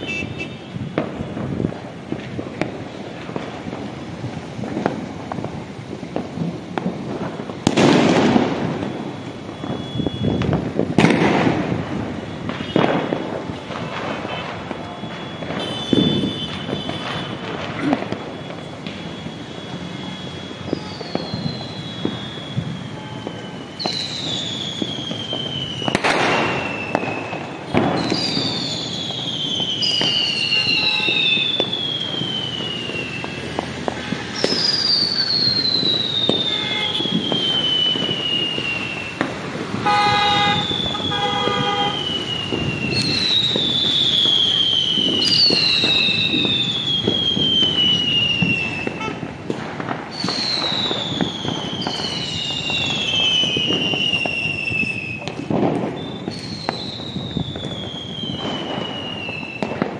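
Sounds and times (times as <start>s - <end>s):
vehicle horn honking: 0.0s - 0.8s, 36.5s - 37.1s, 39.8s - 42.0s, 49.0s - 49.2s
distant firecrackers crackling: 0.0s - 59.9s
firework bangs: 0.0s - 59.9s
whistling fireworks: 0.0s - 59.9s.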